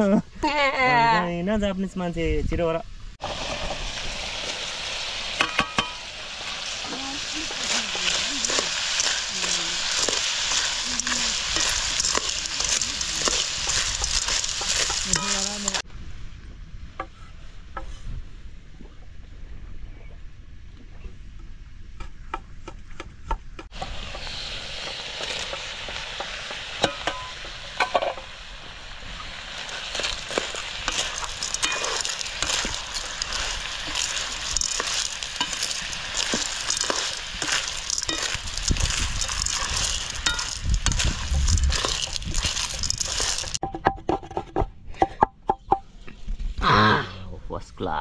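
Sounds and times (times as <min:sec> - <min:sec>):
food sizzling in hot oil: 0:03.2 - 0:15.9, 0:23.7 - 0:43.6.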